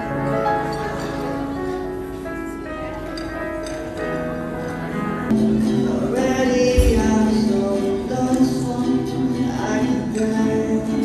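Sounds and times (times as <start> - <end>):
acoustic guitars playing: 0.0 - 11.0
man singing: 5.4 - 11.0.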